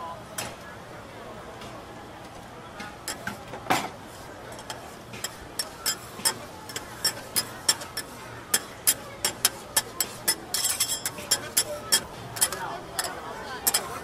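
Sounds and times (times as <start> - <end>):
metal spatulas clinking on griddle: 3.0 - 3.9, 4.5 - 14.0.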